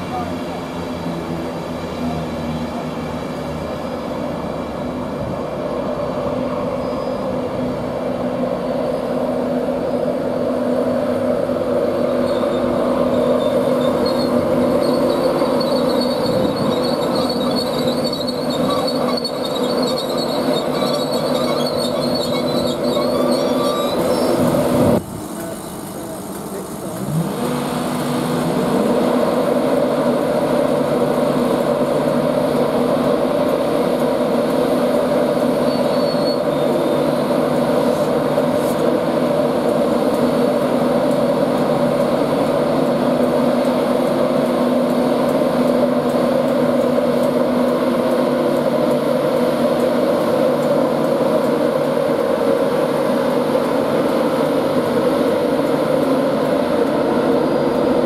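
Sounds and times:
electric locomotive humming drone: 0.0s - 58.0s.

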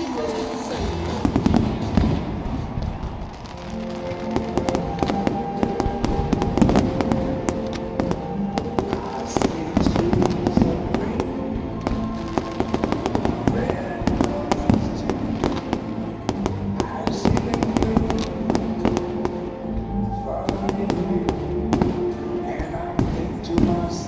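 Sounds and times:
music over loudspeakers: 0.0s - 24.0s
firework shells bursting: 1.1s - 19.5s.

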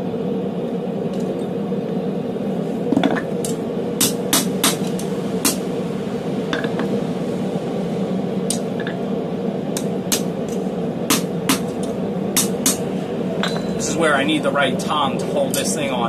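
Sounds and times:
loud steady rushing noise: 0.0s - 16.0s.

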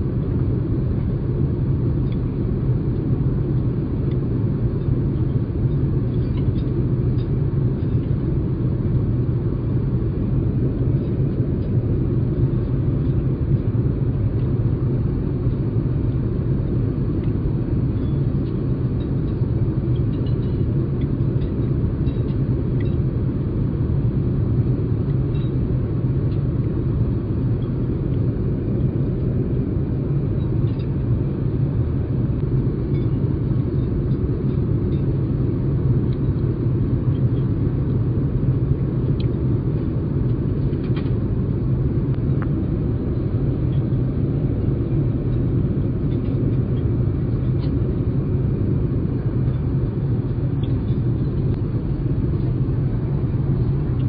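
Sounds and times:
aircraft cabin rumble: 0.0s - 54.0s.

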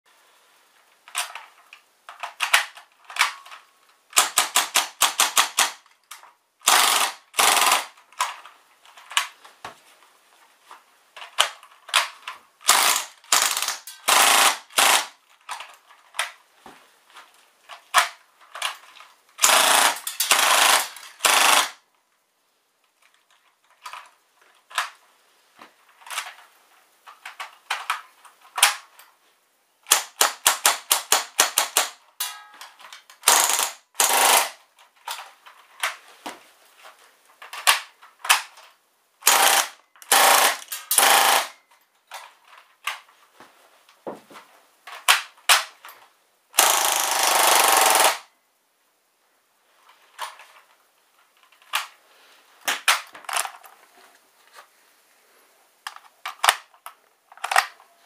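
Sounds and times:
airsoft gun firing bursts: 4.2s - 5.8s, 6.6s - 8.0s, 12.6s - 15.2s, 19.4s - 21.8s, 33.2s - 34.6s, 39.2s - 41.6s, 46.6s - 48.3s.

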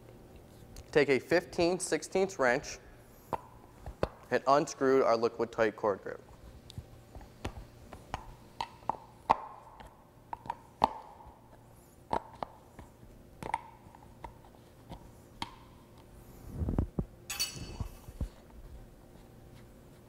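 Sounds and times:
metal wrench clicking and clinking: 17.3s - 17.9s.

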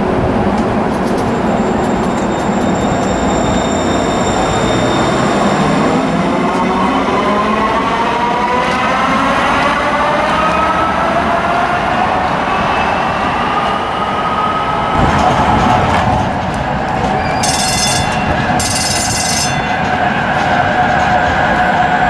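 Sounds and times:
light rail train running: 0.0s - 22.0s
high ringing bursts: 17.4s - 19.8s.

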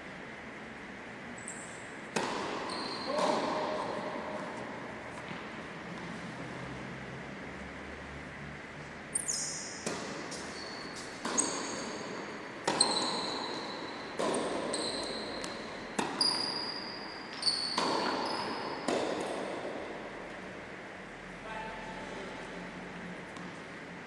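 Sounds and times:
shoes squeaking on court floor: 1.4s - 5.5s, 9.1s - 19.4s
ball bounces: 2.1s - 3.8s, 9.8s - 12.0s, 12.6s - 16.4s, 17.3s - 19.5s
tennis racket strikes: 2.1s - 5.5s, 9.8s - 16.2s, 17.7s - 19.6s.

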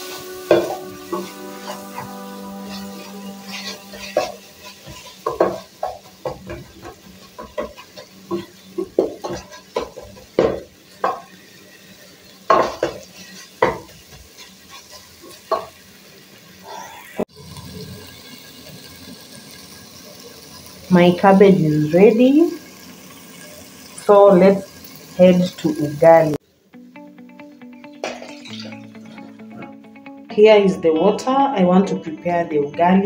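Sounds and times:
cabbage sizzling: 0.0s - 32.9s
wooden spoon scraping a pot: 0.5s - 11.3s.

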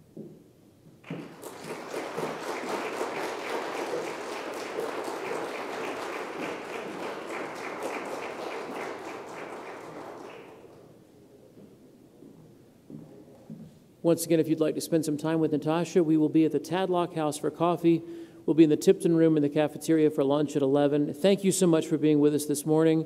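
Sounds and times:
audience applauding: 1.0s - 10.9s.

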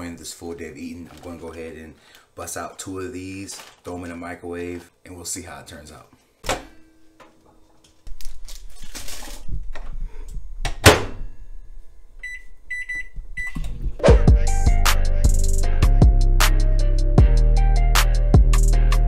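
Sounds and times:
music with drums: 14.0s - 19.0s.

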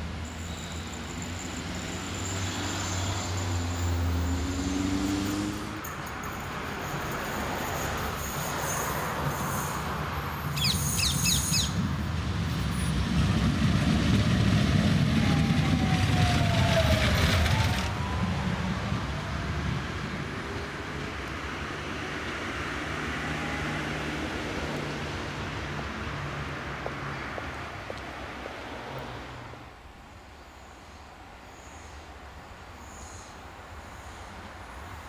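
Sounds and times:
tram wheels rumbling on rails: 0.1s - 23.0s
bird chirps: 10.5s - 11.8s.

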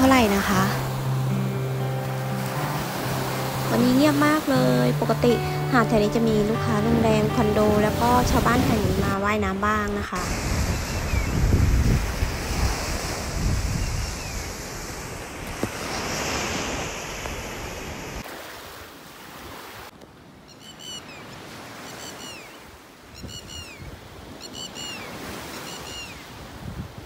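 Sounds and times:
surf: 0.0s - 20.0s
wind buffeting microphone: 7.4s - 16.2s, 26.4s - 27.0s
lapwing calling: 20.5s - 26.3s.

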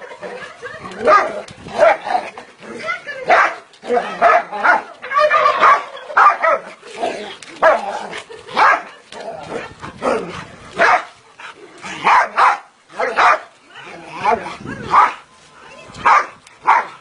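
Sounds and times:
dog barking: 5.5s - 6.6s, 10.8s - 11.1s, 12.0s - 13.5s, 16.0s - 17.0s.

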